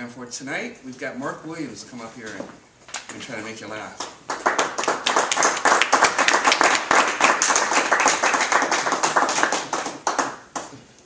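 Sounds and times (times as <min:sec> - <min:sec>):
audience clapping: 0:03.0 - 0:11.0.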